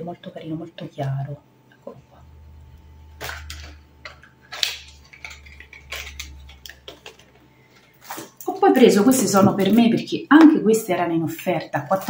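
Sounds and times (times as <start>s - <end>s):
packaging rustling: 3.1s - 9.8s.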